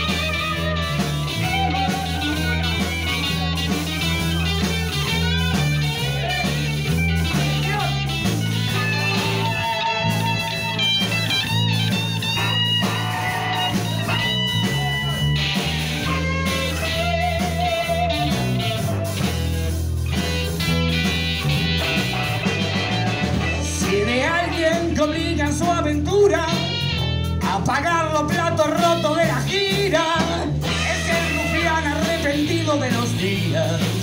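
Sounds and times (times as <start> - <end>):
bass and drums: 0.0 - 34.0
electric guitar lead: 0.0 - 34.0.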